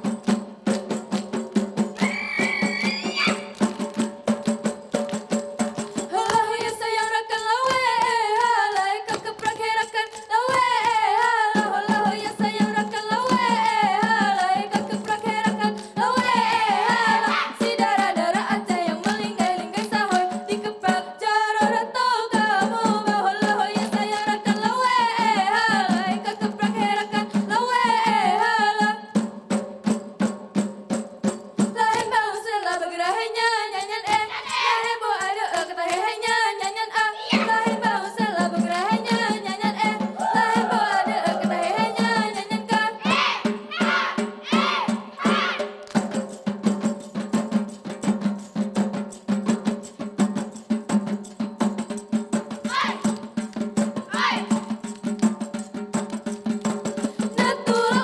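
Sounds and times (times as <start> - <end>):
drums: 0.0 - 7.2, 11.4 - 32.0, 37.3 - 58.0
lead voice singing: 15.3 - 18.9, 31.8 - 45.7.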